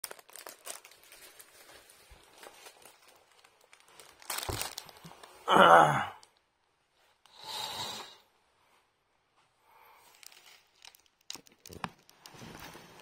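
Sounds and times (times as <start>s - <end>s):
plastic wrapping crinkling: 0.0s - 5.4s, 10.0s - 13.0s.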